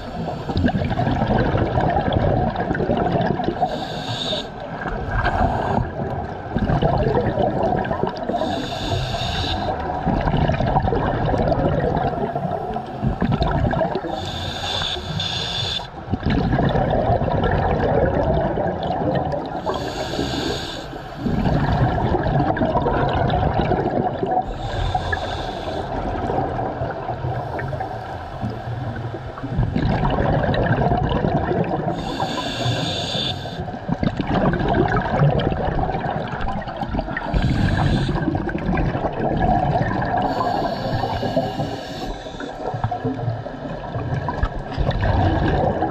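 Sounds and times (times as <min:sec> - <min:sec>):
exhaled bubbles rushing: 0:00.0 - 0:03.8, 0:04.6 - 0:08.6, 0:09.7 - 0:14.2, 0:16.1 - 0:19.8, 0:21.2 - 0:25.1, 0:25.9 - 0:32.1, 0:33.7 - 0:45.9
hissing regulator inhalations: 0:03.7 - 0:04.6, 0:08.3 - 0:09.8, 0:14.0 - 0:16.0, 0:19.6 - 0:21.5, 0:24.4 - 0:26.0, 0:31.9 - 0:33.7, 0:37.2 - 0:38.3, 0:40.2 - 0:43.0.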